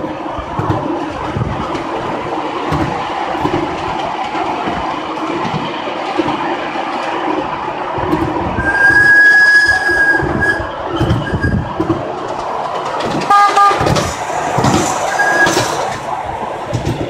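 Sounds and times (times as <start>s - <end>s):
train wheels knocking on rail joints: 0.0s - 9.0s, 10.1s - 17.0s
loud stacked tone: 13.3s - 14.0s, 15.1s - 15.7s.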